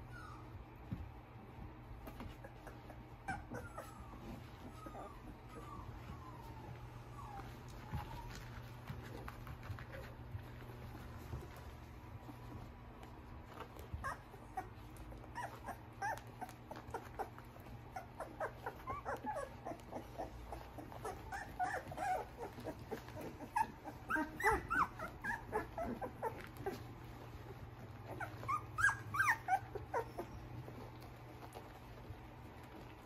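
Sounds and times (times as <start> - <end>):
puppies squeaking and whimpering: 0.0 - 0.9, 2.2 - 10.4, 13.4 - 33.0.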